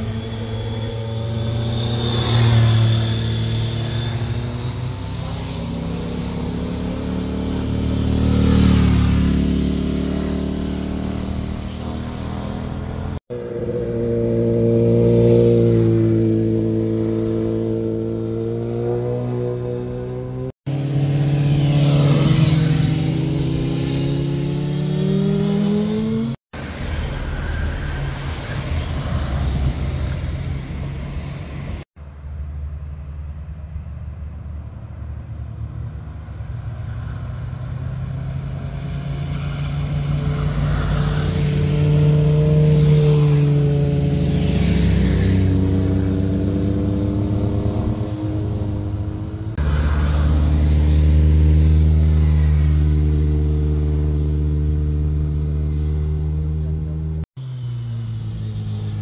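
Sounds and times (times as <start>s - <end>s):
motorcycle engine accelerating: 0.0s - 26.4s, 37.1s - 57.3s
group of motorcycles rumbling: 0.0s - 31.9s, 35.6s - 59.0s.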